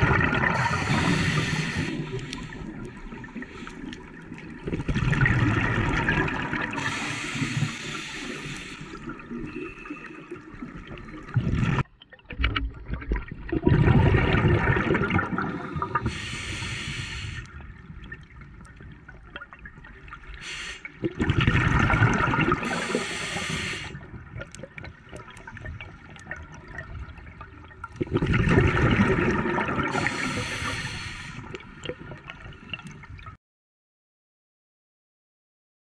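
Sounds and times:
gurgling exhaust bubbles underwater: 0.0 - 33.4
regulator hiss: 0.6 - 2.6, 6.8 - 9.0, 16.0 - 17.5, 20.4 - 20.9, 22.7 - 24.0, 30.0 - 31.5.

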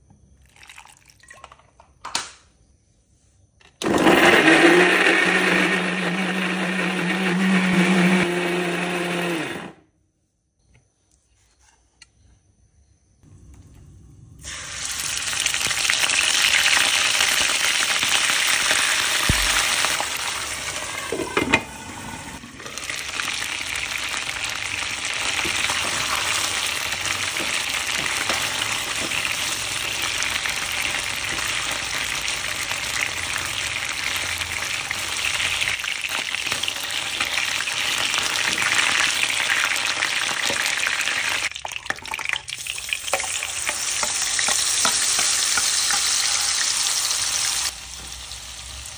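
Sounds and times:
chicken sizzling in hot oil: 14.4 - 48.9.

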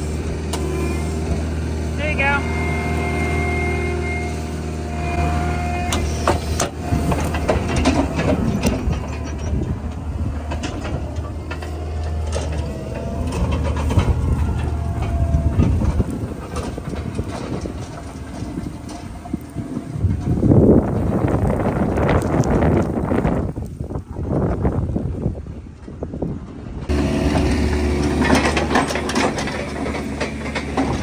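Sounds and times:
diesel machinery humming: 0.0 - 31.0
sharp knocks and clatter: 5.9 - 21.1, 26.9 - 31.0.

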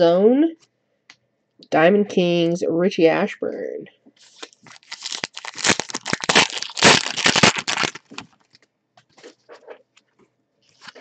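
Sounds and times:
wrapper crackling and crinkling: 4.2 - 8.6.

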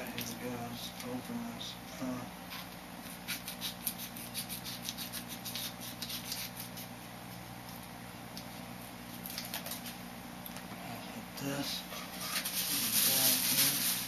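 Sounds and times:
wrapper crinkling: 12.2 - 14.0.

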